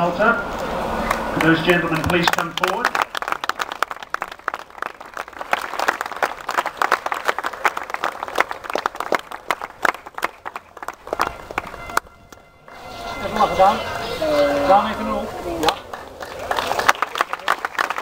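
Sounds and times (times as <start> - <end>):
audience applauding: 1.0 - 12.5, 15.5 - 18.0.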